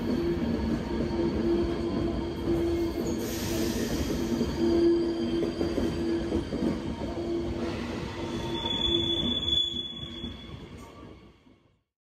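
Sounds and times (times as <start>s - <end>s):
train wheels squealing on rails: 0.0s - 11.6s
train rumble: 0.0s - 11.7s.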